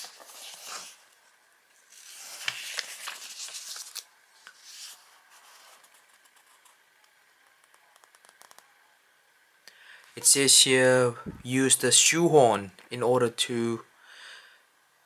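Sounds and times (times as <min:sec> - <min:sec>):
paper rustling: 0:00.0 - 0:01.2, 0:01.8 - 0:06.7.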